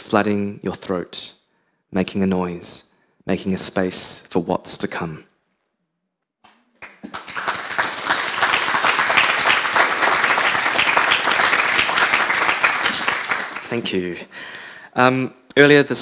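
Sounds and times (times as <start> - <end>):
audience applauding: 6.8 - 14.2.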